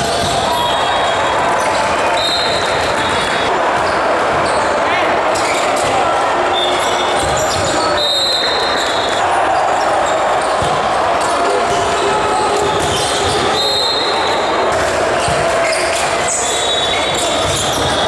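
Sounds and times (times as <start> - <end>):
balls hit and bouncing on court: 0.0 - 18.0
many voices: 0.0 - 18.0
referee whistles: 2.0 - 3.5, 6.5 - 9.2, 12.9 - 14.6, 15.6 - 18.0.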